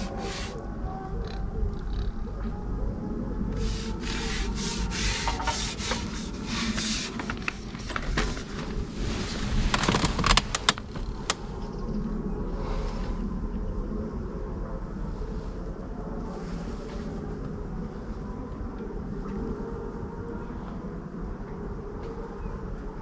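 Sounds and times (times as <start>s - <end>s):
rubbing and scraping noises: 0.0s - 0.7s, 3.5s - 11.6s
wind rumble on microphone: 0.0s - 23.0s.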